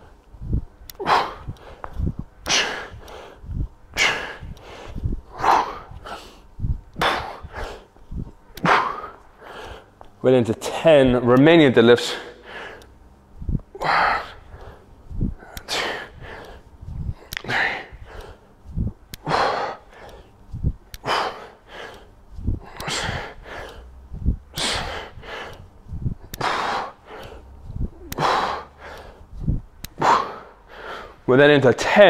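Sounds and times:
man breathing hard: 0.0s - 10.1s, 12.0s - 31.3s.

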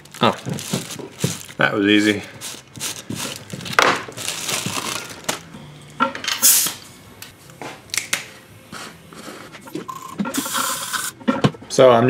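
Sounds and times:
plastic bag crinkling: 0.0s - 5.5s.

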